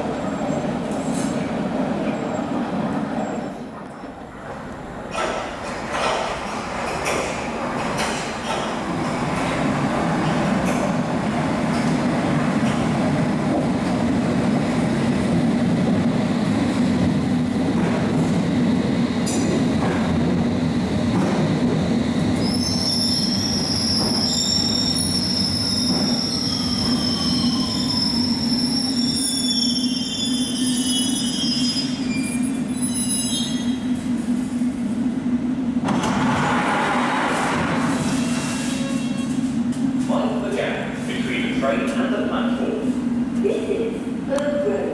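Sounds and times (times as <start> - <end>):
train rumble: 0.0 - 29.6, 32.0 - 44.9
falling whine of slowing train: 0.0 - 44.9
wheels and brakes squealing: 22.4 - 33.9, 38.1 - 39.5.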